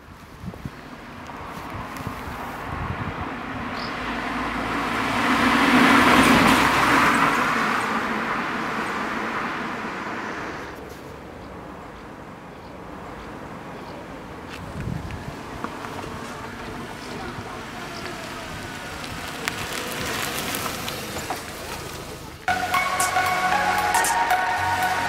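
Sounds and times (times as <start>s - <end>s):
car driving past: 1.0s - 11.2s, 15.2s - 25.0s.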